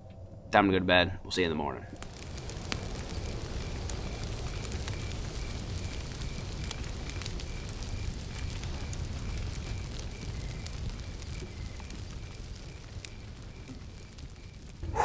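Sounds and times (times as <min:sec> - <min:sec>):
wood fire crackling: 0:01.4 - 0:15.0.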